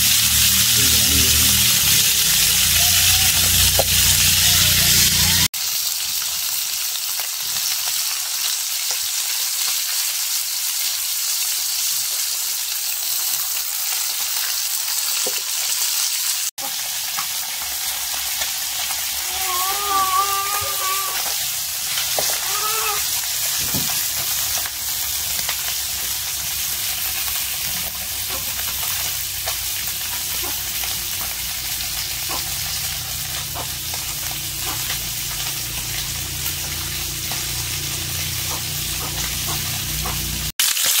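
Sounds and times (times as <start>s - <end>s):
food sizzling in hot oil: 0.0s - 41.0s
faint voice-like call: 19.2s - 21.3s.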